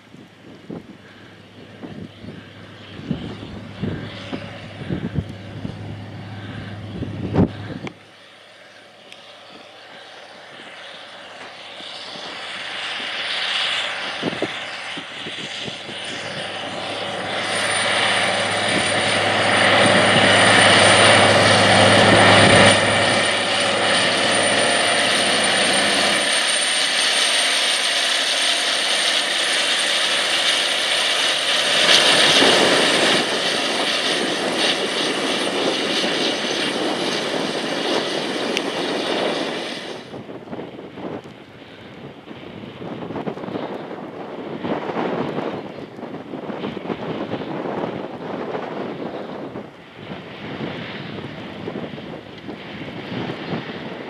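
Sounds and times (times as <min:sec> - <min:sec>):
broad rushing noise: 0:00.0 - 0:54.0
tractor diesel engine under load: 0:01.4 - 0:08.0.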